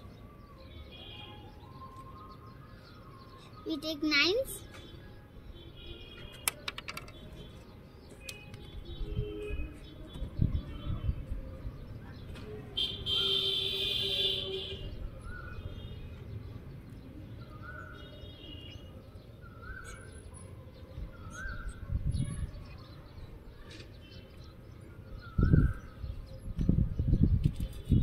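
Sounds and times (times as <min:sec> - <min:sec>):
bird chirping: 0:16.4 - 0:20.4.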